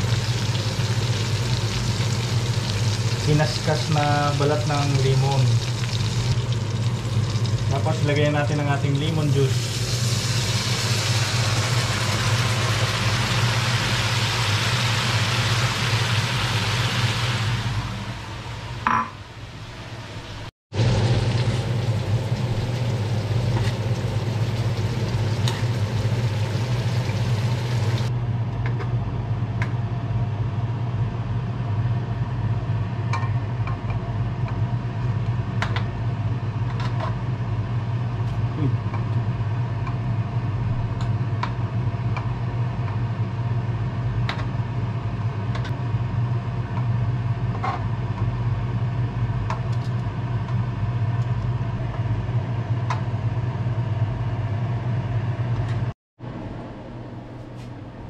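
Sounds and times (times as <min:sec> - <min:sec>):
butter sauce sizzling: 0:00.0 - 0:07.8, 0:09.4 - 0:18.2, 0:20.8 - 0:28.1
low mechanical hum: 0:00.0 - 0:58.0.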